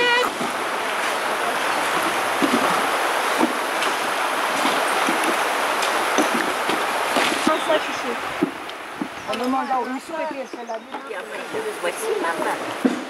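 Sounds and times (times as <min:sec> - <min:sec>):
stream running over rocks: 0:00.0 - 0:13.0.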